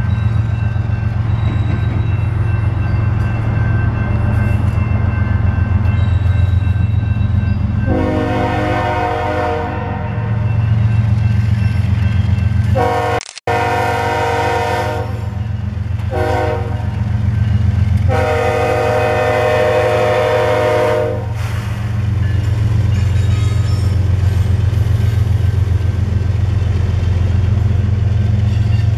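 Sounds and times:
locomotive engine rumbling: 0.0 - 28.9
train air horn: 7.9 - 10.2, 12.8 - 15.3, 16.1 - 17.0, 18.1 - 21.6.

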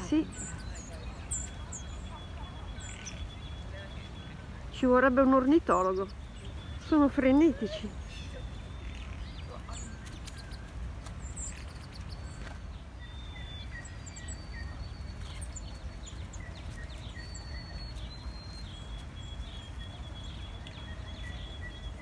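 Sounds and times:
songbirds chirping: 0.0 - 22.0.

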